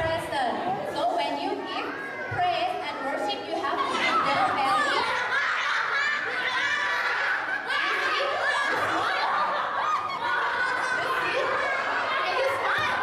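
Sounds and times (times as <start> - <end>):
children laughing: 3.7 - 13.0.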